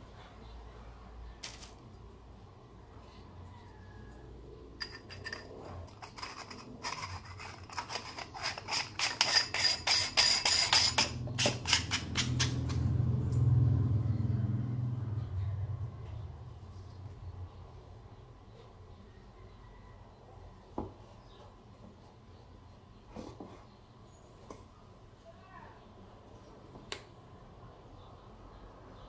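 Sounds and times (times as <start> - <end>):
low hum: 12.0 - 19.0.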